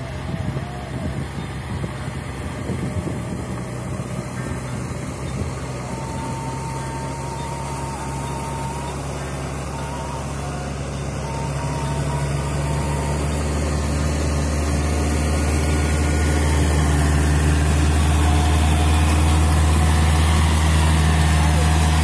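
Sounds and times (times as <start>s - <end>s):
tractor diesel engine running: 0.0s - 22.0s.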